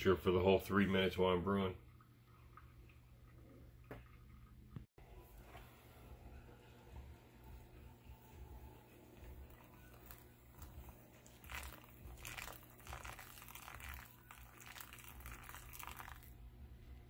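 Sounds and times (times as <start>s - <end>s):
water splashing onto coffee grounds: 9.2s - 16.4s.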